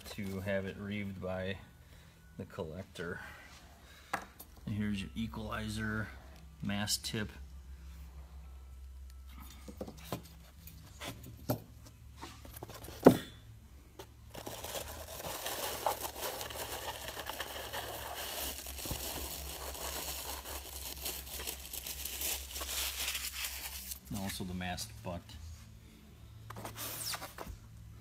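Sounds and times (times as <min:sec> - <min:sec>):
plastic wrapping crinkling: 0:14.3 - 0:24.2.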